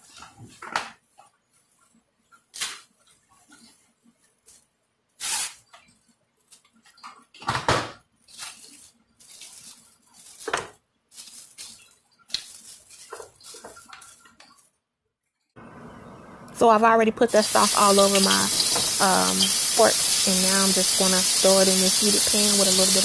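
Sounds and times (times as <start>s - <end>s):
cling wrap crinkling and rustling: 8.1s - 14.8s.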